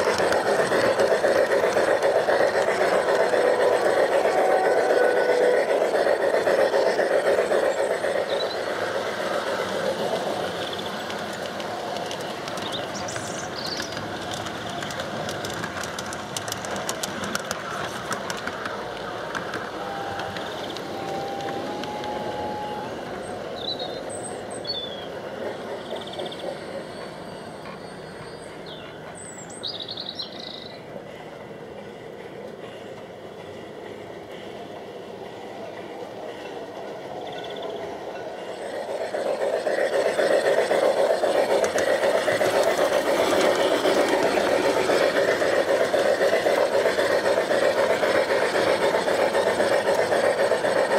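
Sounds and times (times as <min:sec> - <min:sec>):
model train wheels rumbling on rail: 0:00.0 - 0:50.9
quick clicks: 0:10.2 - 0:22.2, 0:38.7 - 0:50.9
birds chirping: 0:12.0 - 0:15.0.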